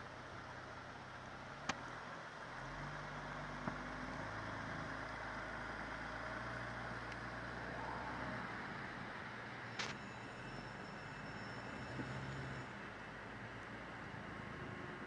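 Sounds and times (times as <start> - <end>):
van engine running: 0.0 - 10.0.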